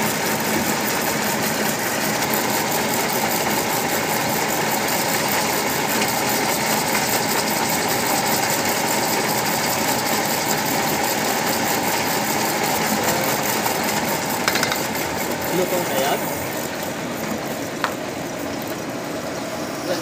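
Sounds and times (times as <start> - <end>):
metal lathe running: 0.0 - 20.0.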